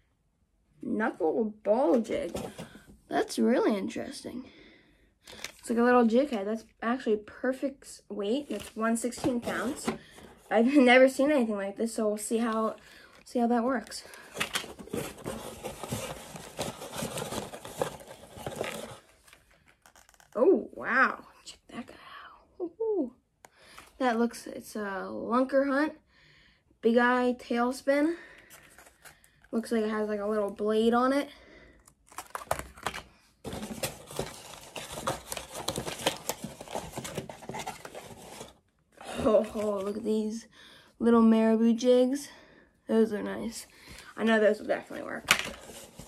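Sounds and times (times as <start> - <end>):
cardboard and plastic packaging rustling: 1.9 - 3.0, 8.4 - 10.9, 12.3 - 20.3, 32.1 - 40.1, 44.3 - 46.0.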